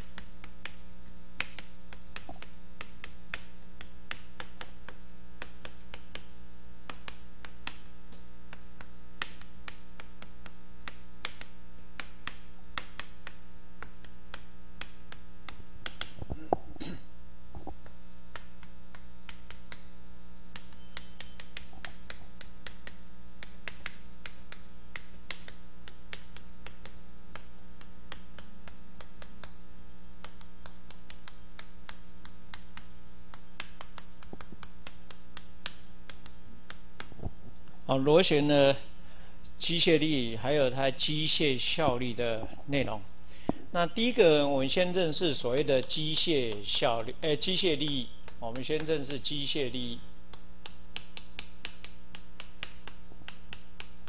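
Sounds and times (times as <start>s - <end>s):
chalk tapping on a blackboard: 0.0s - 0.8s, 1.4s - 16.2s, 17.6s - 19.9s, 20.5s - 29.6s, 30.2s - 37.3s, 45.6s - 54.0s
electrical hum: 0.0s - 54.0s.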